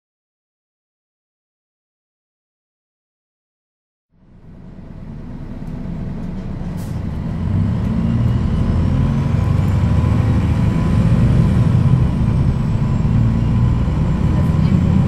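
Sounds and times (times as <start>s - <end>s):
bus diesel engine running: 4.1s - 15.0s.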